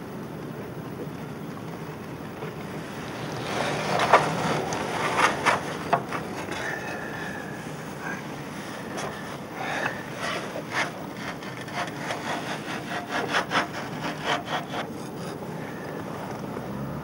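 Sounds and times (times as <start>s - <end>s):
steady background hiss: 0.0s - 17.0s
spanner scraping metal fitting: 8.8s - 15.3s.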